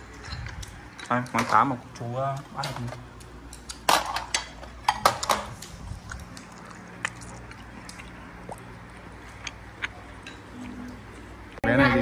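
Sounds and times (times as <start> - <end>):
tableware clicks and taps: 2.6 - 5.6
wet squishing of food: 5.6 - 11.6.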